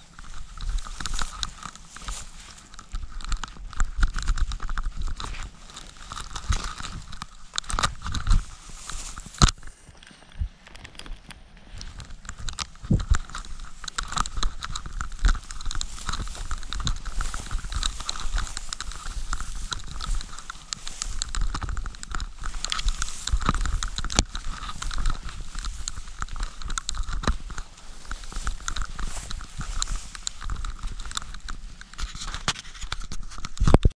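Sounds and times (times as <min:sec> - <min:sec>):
wind rumble: 0:11.6 - 0:32.5.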